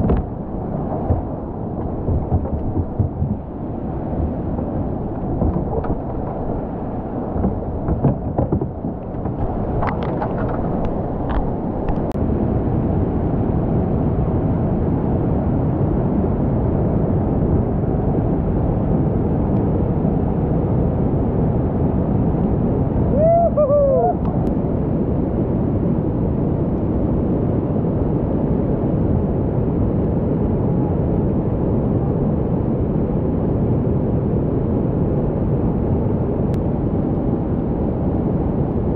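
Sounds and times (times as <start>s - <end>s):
whitewater rapid roaring: 0.0s - 12.2s
person shouting: 23.1s - 24.2s.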